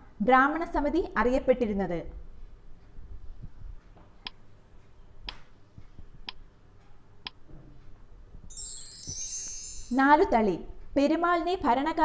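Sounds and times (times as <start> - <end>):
bright chime: 8.5 - 10.3.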